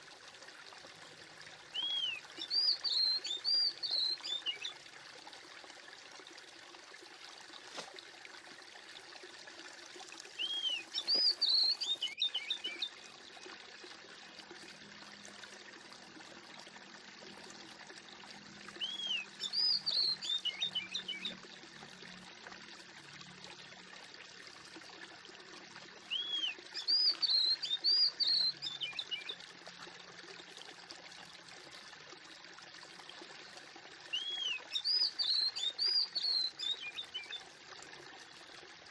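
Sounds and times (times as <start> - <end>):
running water trickling: 0.0 - 38.9
birds chirping: 10.4 - 13.1.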